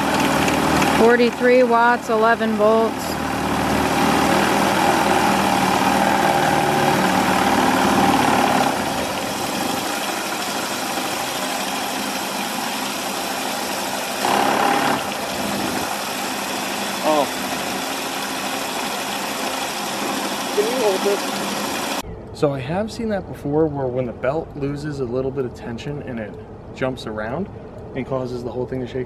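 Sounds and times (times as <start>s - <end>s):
rushing water jets: 0.0s - 22.0s
turbine tone: 0.0s - 28.0s.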